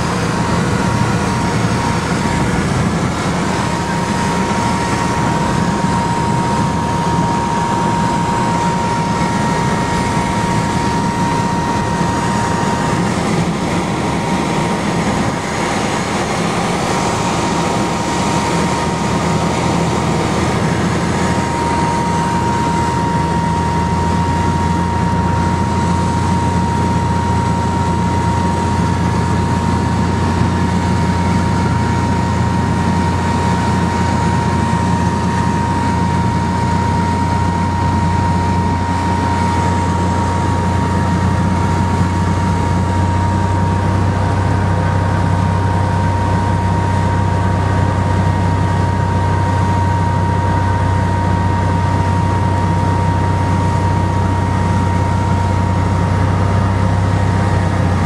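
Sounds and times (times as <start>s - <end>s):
propeller plane engine droning: 0.0s - 58.0s
thin high whine: 0.0s - 58.0s.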